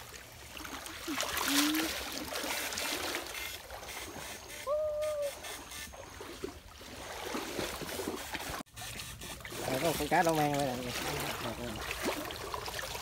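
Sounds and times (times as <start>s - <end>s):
water sloshing around legs: 0.0s - 4.7s, 5.4s - 13.0s.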